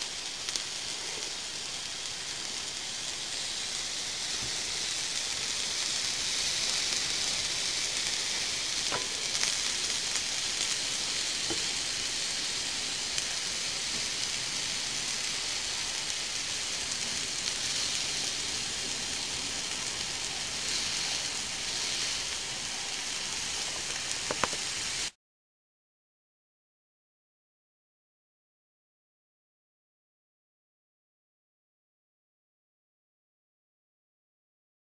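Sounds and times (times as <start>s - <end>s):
steak sizzling: 0.0s - 25.2s
small pops: 24.1s - 24.7s.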